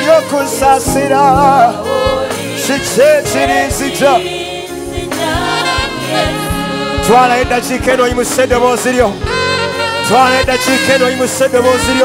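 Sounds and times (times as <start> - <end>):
choir singing gospel: 0.0 - 7.8
backing band with drum beat: 0.9 - 11.0.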